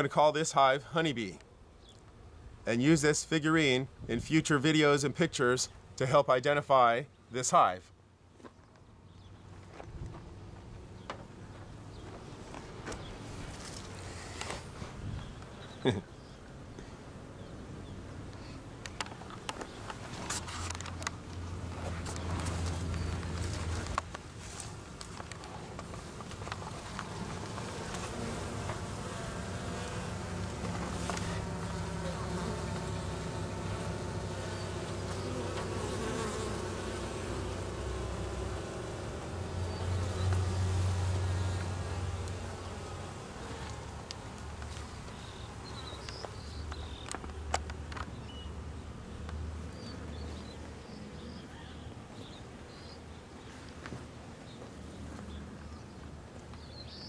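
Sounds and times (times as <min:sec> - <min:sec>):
bees buzzing: 0:20.8 - 0:48.9.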